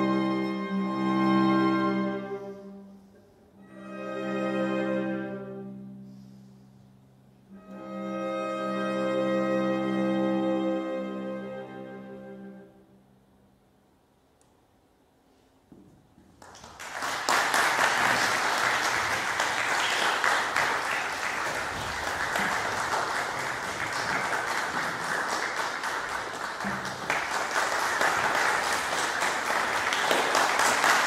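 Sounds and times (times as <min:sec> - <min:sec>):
audience applause: 0:16.4 - 0:31.0.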